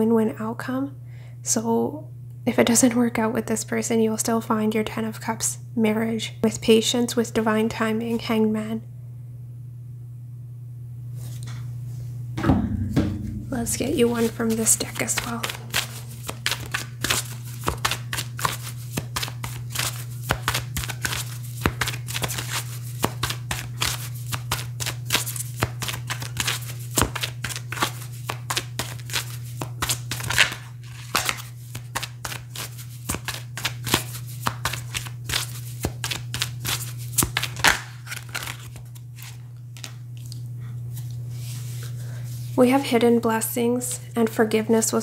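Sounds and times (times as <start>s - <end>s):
low hum: 8.8s - 16.3s
cards being shuffled: 13.8s - 40.4s.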